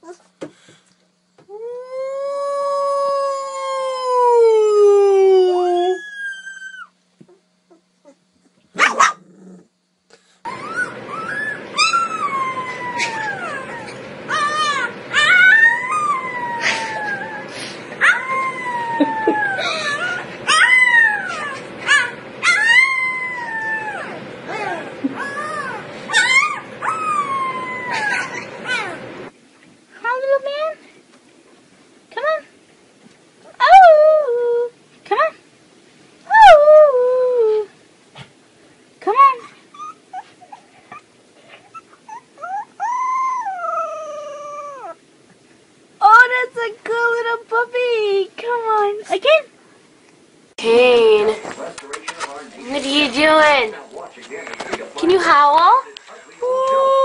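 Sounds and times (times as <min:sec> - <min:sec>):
puppy howling: 0:01.5 - 0:07.0, 0:10.4 - 0:29.2, 0:36.3 - 0:37.7, 0:41.7 - 0:45.0
puppy yelp: 0:05.9 - 0:06.9, 0:10.5 - 0:17.4, 0:18.0 - 0:29.0, 0:39.7 - 0:45.0.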